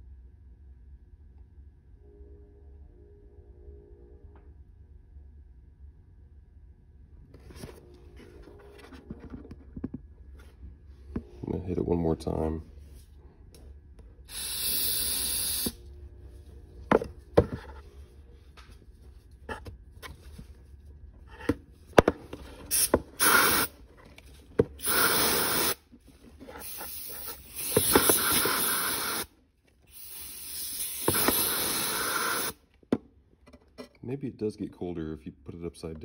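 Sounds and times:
aerosol can spraying: 14.3 - 15.8, 22.7 - 23.7, 24.8 - 25.8, 26.6 - 29.3, 29.9 - 32.6.

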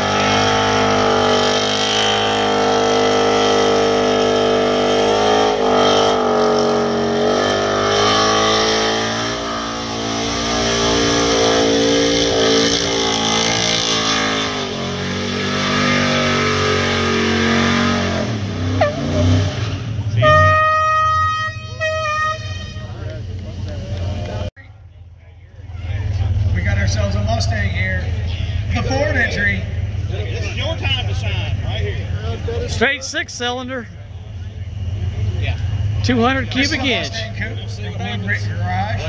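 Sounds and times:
engine revving high: 0.0 - 21.0.

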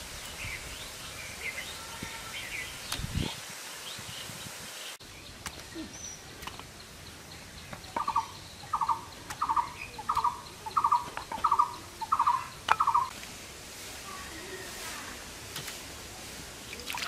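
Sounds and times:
bird calling: 7.9 - 13.1.

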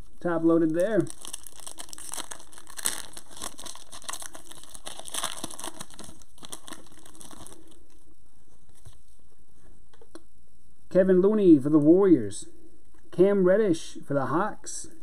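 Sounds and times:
foil wrapper tearing and crinkling: 0.8 - 7.8.

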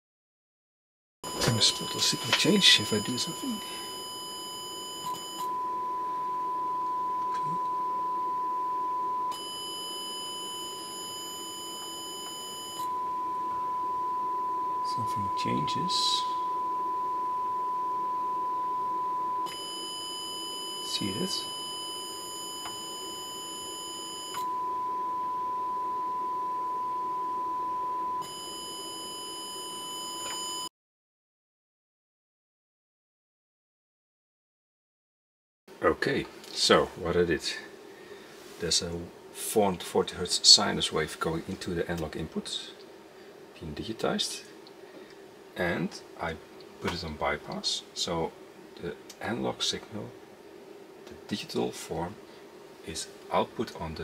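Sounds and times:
sine test tone distorted: 1.2 - 30.7.

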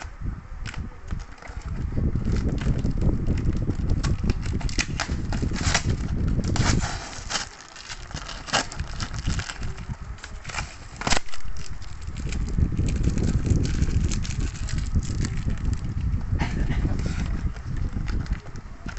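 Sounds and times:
plastic wrap and tape crackling: 0.6 - 18.9
cardboard box handling bumps: 4.6 - 9.2.

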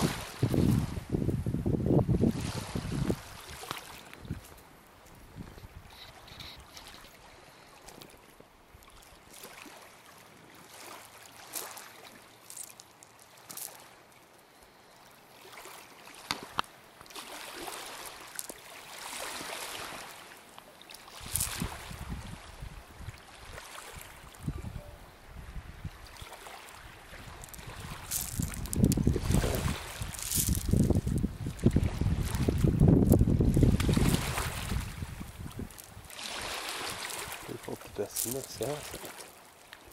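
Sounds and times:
clicks and scrapes on pebbles: 12.4 - 13.8, 27.4 - 31.3.

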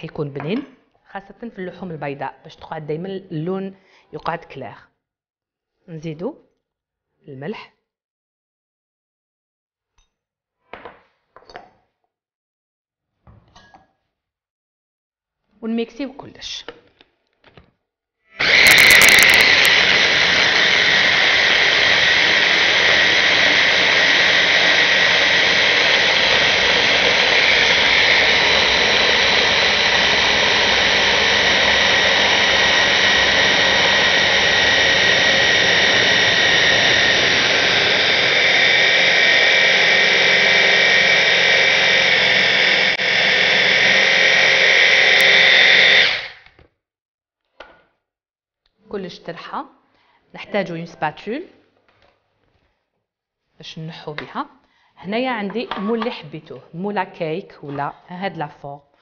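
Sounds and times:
stick blender motor whine: 18.4 - 46.6.

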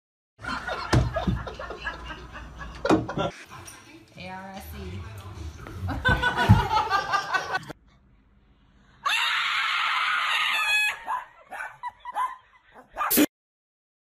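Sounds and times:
loud scream: 9.0 - 11.3.

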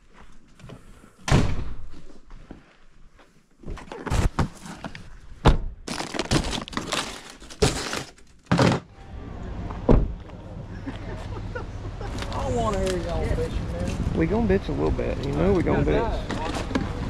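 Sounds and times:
bags being loaded into car: 3.7 - 9.0
plastic wrap rustling: 5.9 - 8.5.

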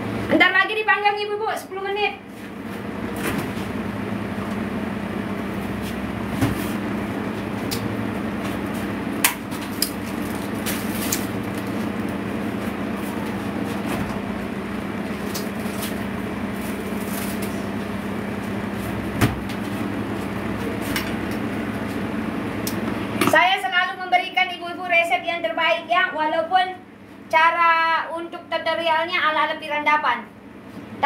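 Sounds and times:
kitchen appliance humming: 2.3 - 23.3.

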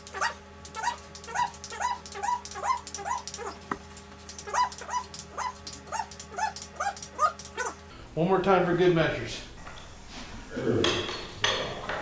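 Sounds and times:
dog yipping and whimpering: 0.0 - 3.6, 4.3 - 7.8.

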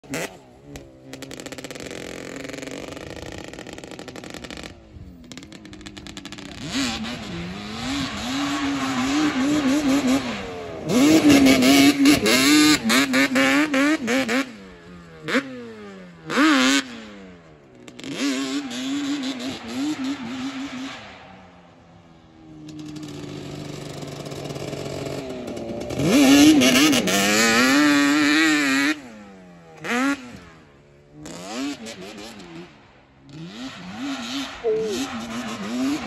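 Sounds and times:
two-stroke engine revving: 0.0 - 17.2, 17.8 - 20.6, 22.6 - 36.0
throttle blips: 34.6 - 35.3.

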